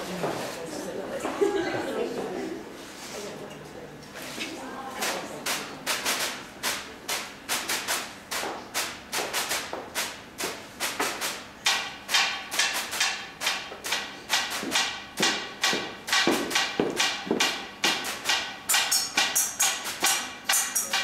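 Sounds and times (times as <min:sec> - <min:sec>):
metal platters ringing: 0:18.2 - 0:21.0.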